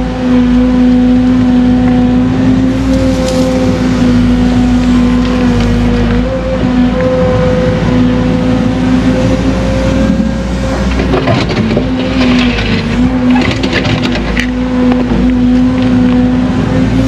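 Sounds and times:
excavator engine humming: 0:00.0 - 0:17.0
bucket scraping rocky dirt: 0:10.9 - 0:14.6.

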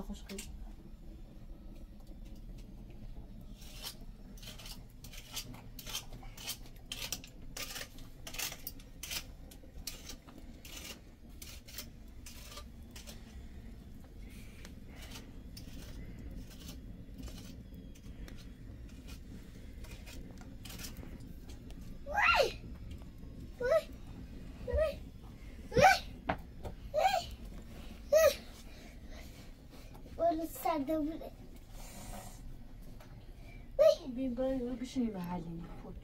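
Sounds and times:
steady low rumble: 0:00.0 - 0:36.0
wood fire crackling and popping: 0:00.0 - 0:36.0.

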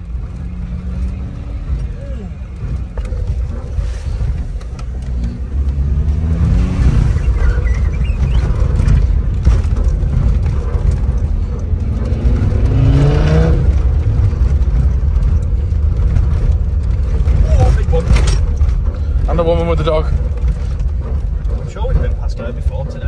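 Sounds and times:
car engine accelerating: 0:00.0 - 0:23.0
low rumble of driving on gravel: 0:00.0 - 0:23.0.

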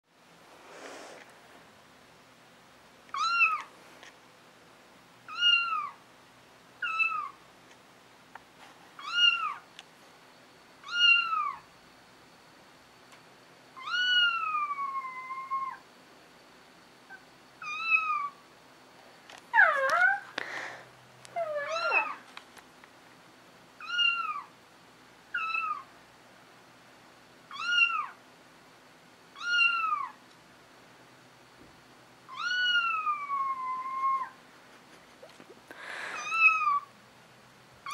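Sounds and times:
wavering cat calls: 0:05.3 - 0:06.0, 0:06.8 - 0:07.4, 0:10.8 - 0:11.6, 0:13.8 - 0:15.8, 0:19.5 - 0:20.4, 0:21.3 - 0:22.2, 0:23.8 - 0:24.5, 0:25.3 - 0:25.9, 0:27.5 - 0:28.2, 0:29.4 - 0:30.2, 0:32.3 - 0:34.4, 0:36.2 - 0:36.9.

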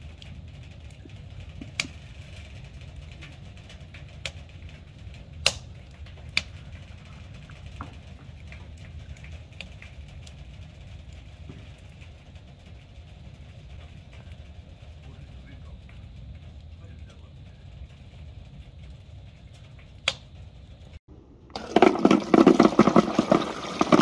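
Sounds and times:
low rumble: 0:00.0 - 0:24.0.

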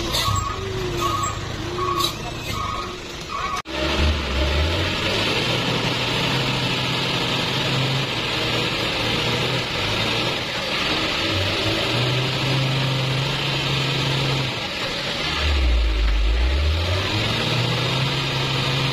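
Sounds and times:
truck reversing alarm beeping: 0:00.0 - 0:03.6
diesel truck engine under load: 0:00.0 - 0:18.9.

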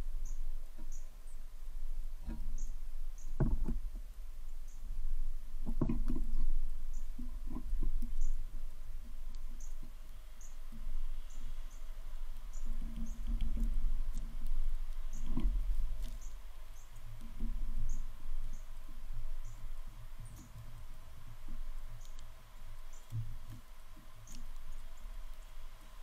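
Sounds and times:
dull knocks: 0:03.4 - 0:03.9, 0:05.6 - 0:06.5.

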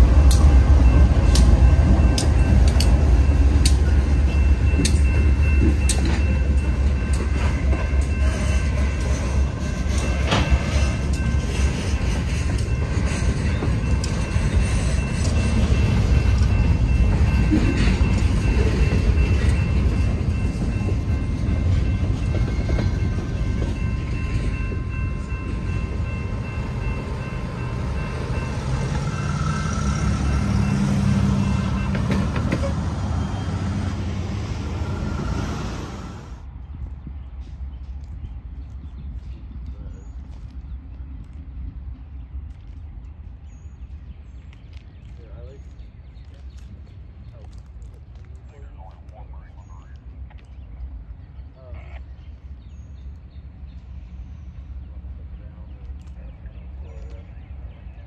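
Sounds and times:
train wheels clacking over rail joints: 0:00.0 - 0:21.0, 0:26.7 - 0:33.4
crossing signal bell ringing: 0:00.0 - 0:35.3
diesel locomotive rumble: 0:00.0 - 0:58.0.

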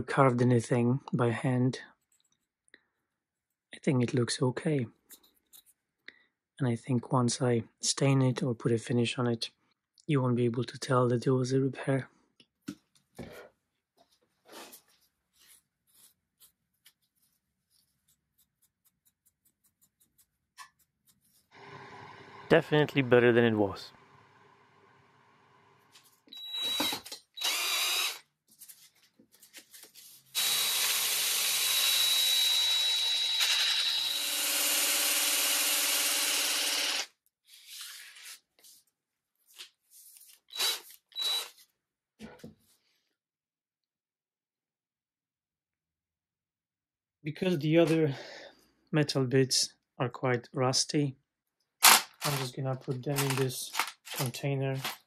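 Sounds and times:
scraping and rubbing: 0:14.4 - 0:21.6
drill motor whine: 0:21.6 - 0:23.2, 0:26.3 - 0:28.2, 0:30.4 - 0:37.1, 0:40.5 - 0:41.5.

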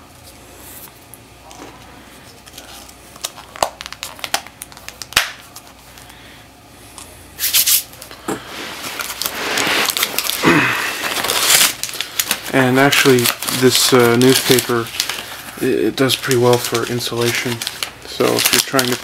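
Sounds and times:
newspaper crinkling: 0:02.2 - 0:06.2, 0:08.6 - 0:19.0.

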